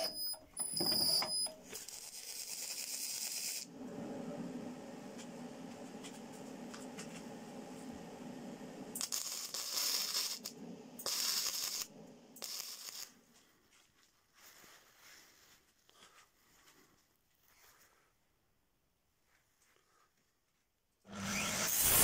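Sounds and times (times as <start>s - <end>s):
low steady hum: 3.7s - 12.4s
angle grinder cutting steel: 21.2s - 22.0s.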